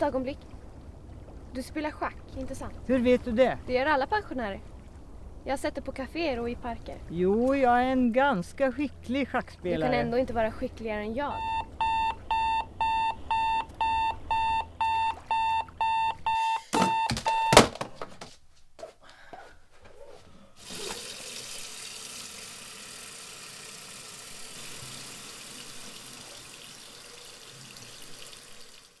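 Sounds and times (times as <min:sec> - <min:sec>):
alarm clock beeping: 0:11.4 - 0:17.6
tap running into washbasin: 0:20.6 - 0:29.0.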